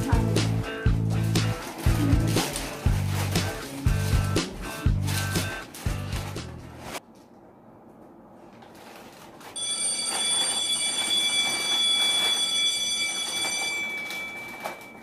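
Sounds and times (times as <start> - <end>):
bell ringing with rattle: 9.6 - 15.0.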